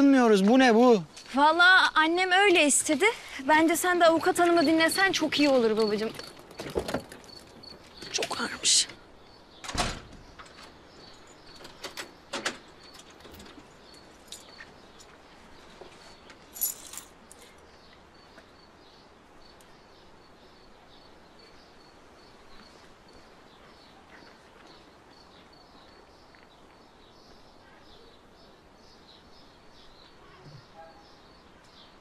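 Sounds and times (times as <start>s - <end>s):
small birds chirping: 0.0s - 32.0s
keys jangling: 16.6s - 17.4s.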